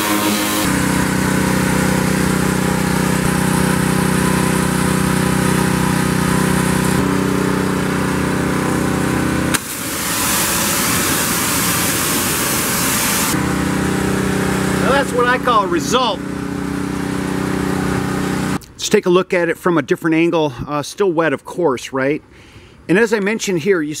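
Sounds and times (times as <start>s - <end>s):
high-pressure water jet hissing: 0.0s - 7.1s, 9.5s - 16.2s
pressure washer engine running: 0.0s - 18.6s.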